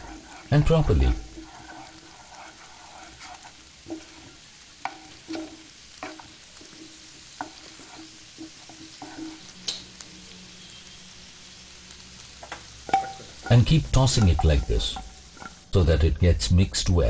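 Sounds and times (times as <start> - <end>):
spatula knocking and scraping pan: 0.0 - 9.6, 12.9 - 15.7
faint sizzle: 0.0 - 17.0.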